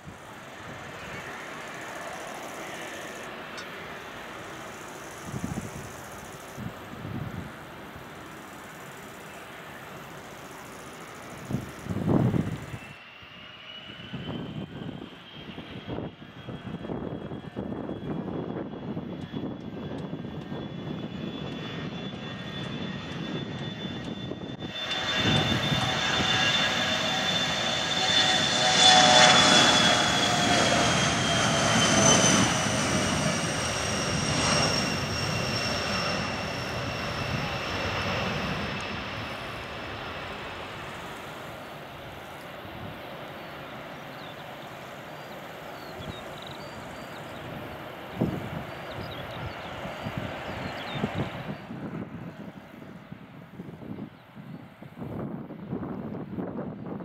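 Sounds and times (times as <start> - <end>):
jet engines roaring with high whine: 0.0 - 57.0.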